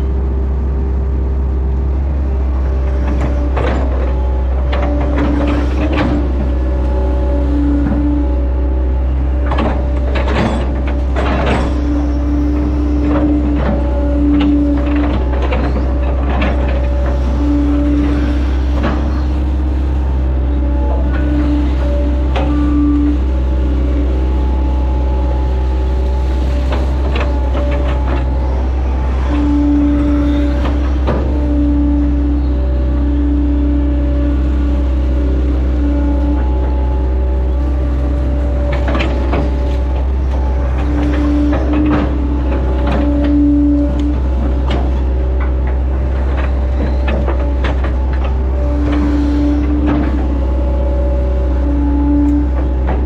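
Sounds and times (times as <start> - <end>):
excavator diesel engine running: 0.0 - 53.0
hydraulic whine: 0.0 - 53.0
machine clunks and rattles: 2.3 - 53.0.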